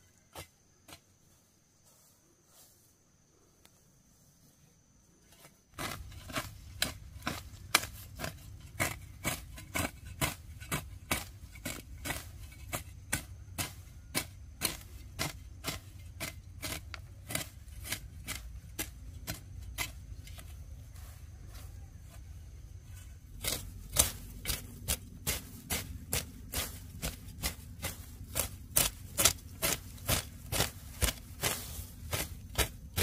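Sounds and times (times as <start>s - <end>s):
low steady rumble: 5.8s - 33.0s
crisp cutting strokes: 23.3s - 33.0s.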